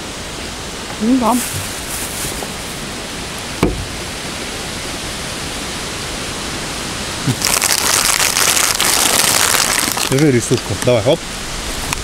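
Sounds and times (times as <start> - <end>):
steady background hiss: 0.0 - 12.0
plastic bag rustling: 1.2 - 3.0, 7.3 - 10.5
short knock: 3.6 - 3.9.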